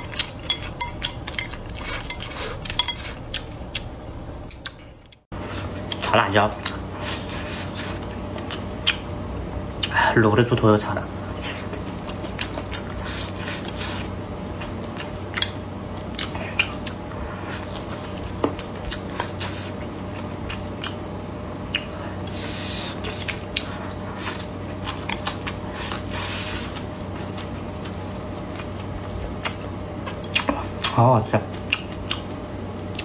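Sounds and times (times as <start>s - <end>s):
chewing with mouth clicks and smacks: 0.0s - 3.9s, 8.0s - 9.1s, 11.4s - 21.0s, 21.7s - 33.0s
steady low hum: 0.0s - 33.0s.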